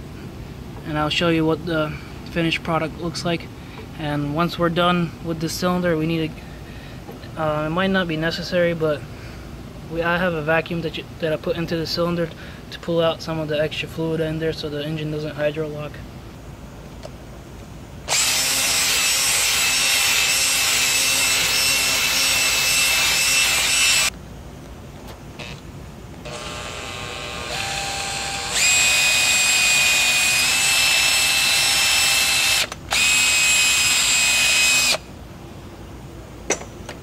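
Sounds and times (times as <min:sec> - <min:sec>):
handheld vacuum motor whine: 0:18.1 - 0:24.1, 0:26.2 - 0:35.0.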